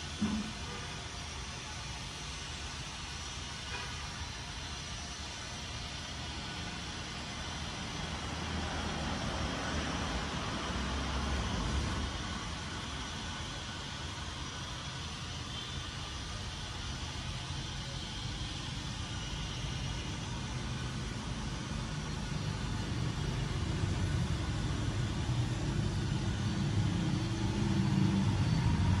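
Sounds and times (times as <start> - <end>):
road traffic rumbling: 6.3 - 14.5, 15.4 - 29.0
vehicle engine: 6.9 - 13.8, 17.7 - 29.0.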